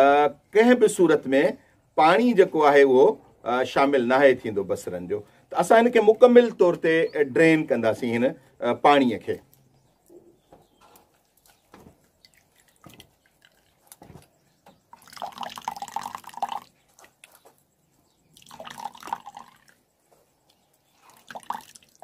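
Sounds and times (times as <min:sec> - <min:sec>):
water trickling through metal sieve: 0:11.3 - 0:17.5, 0:18.2 - 0:19.9, 0:20.8 - 0:22.0.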